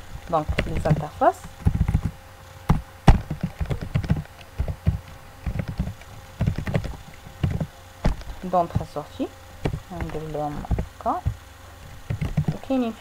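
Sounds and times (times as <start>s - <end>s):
computer keyboard typing: 0.4s - 8.9s, 9.6s - 11.4s, 12.1s - 12.7s.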